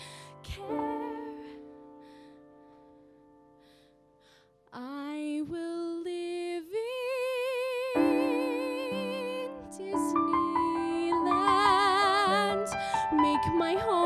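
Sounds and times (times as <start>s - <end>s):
woman singing with vibrato: 0.0s - 1.6s, 4.8s - 14.0s.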